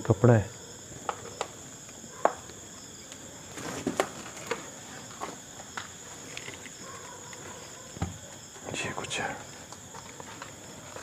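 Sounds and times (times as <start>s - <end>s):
crickets chirring: 0.0s - 11.0s.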